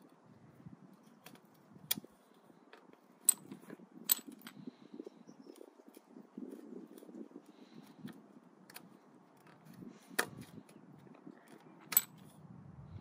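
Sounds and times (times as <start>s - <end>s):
seat clamp handling noise: 2.7s - 4.6s, 8.0s - 10.8s, 11.5s - 12.4s.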